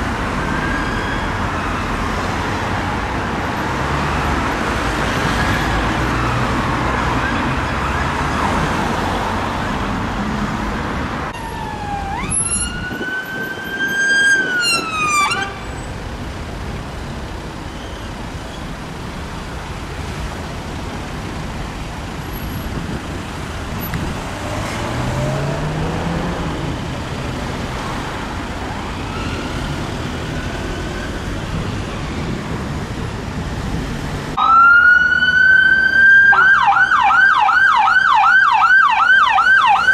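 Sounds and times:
city traffic noise: 0:00.0 - 0:39.9
police car siren wailing: 0:11.3 - 0:15.9, 0:34.4 - 0:39.9
engine revving: 0:23.9 - 0:27.0.

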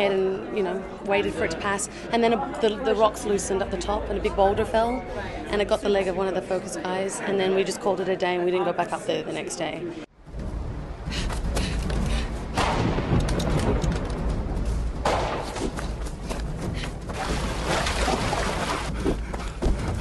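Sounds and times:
heavy thuds and booms: 0:10.3 - 0:20.0.

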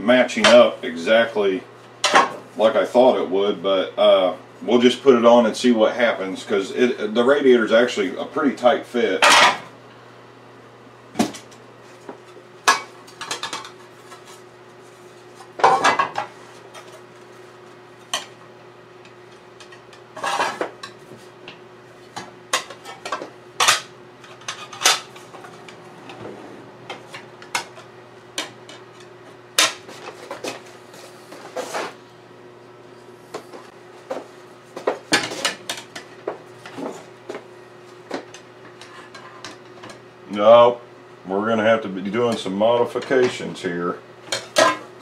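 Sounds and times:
steady low hum: 0:00.0 - 0:45.0.

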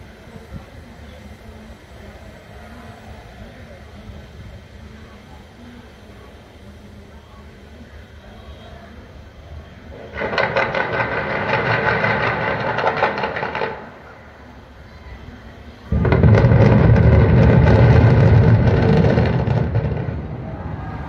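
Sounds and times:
noisy crackling: 0:09.4 - 0:21.0
deep rumble of building collapsing: 0:09.9 - 0:14.7, 0:15.8 - 0:21.0
loud explosive blast: 0:10.0 - 0:14.0, 0:15.9 - 0:21.0.

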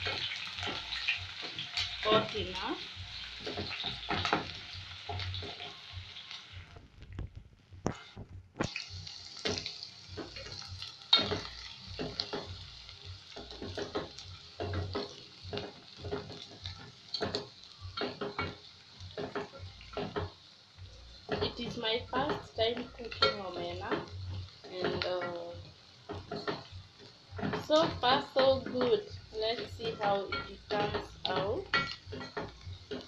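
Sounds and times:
onions sizzling in oil: 0:00.0 - 0:06.8, 0:08.6 - 0:33.0.

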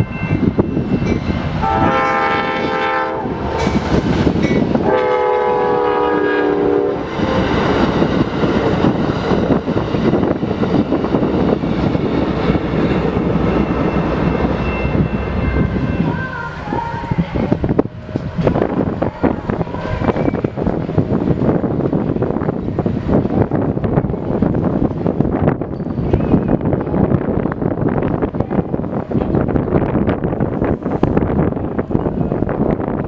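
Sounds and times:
train rumbling past: 0:00.0 - 0:33.0
locomotive air horn blasts: 0:01.6 - 0:03.7, 0:04.8 - 0:07.4.

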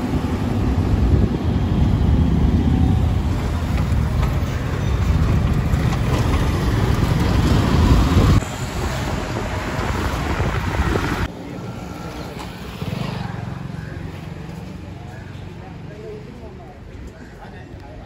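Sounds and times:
wind rumbling on microphone: 0:00.0 - 0:11.3
road noise from moving scooter: 0:00.0 - 0:18.0.

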